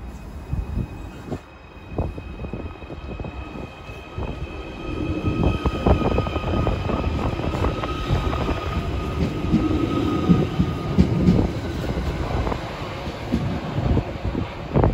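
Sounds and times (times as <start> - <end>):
electric train whine: 0.0 - 14.9
train wheels clicking on track: 5.4 - 14.9.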